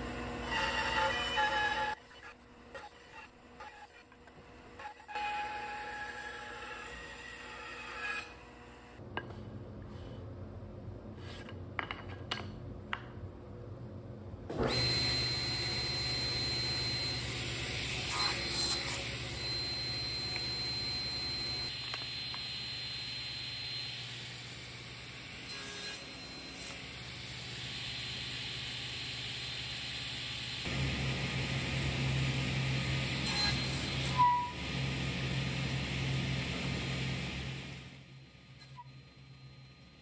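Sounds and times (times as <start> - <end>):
power tool motor humming: 14.6 - 24.2.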